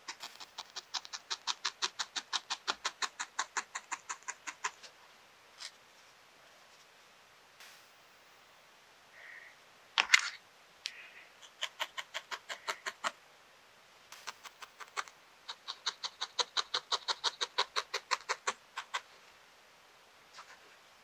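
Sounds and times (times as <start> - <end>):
felting needle ticking into wool: 0.0 - 4.8, 11.4 - 13.2, 14.2 - 19.0.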